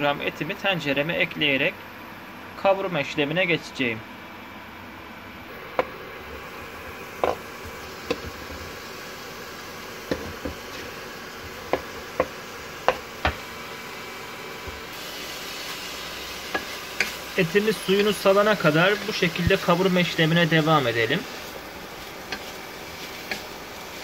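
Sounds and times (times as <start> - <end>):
meat sizzling in pot: 5.5 - 24.0
knife and board knocking pot: 7.2 - 7.4.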